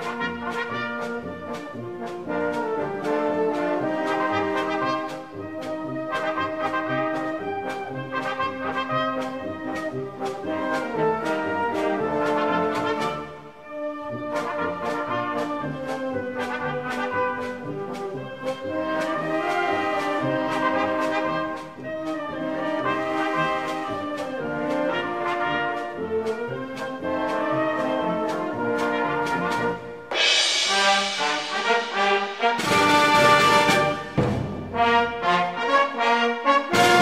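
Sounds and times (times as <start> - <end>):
brass band playing a march: 0.0 - 37.0
drum beat: 29.3 - 35.1.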